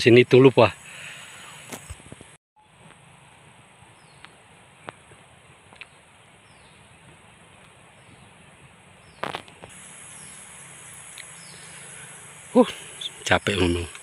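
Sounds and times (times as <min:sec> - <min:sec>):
insect chirring: 0:09.1 - 0:14.0.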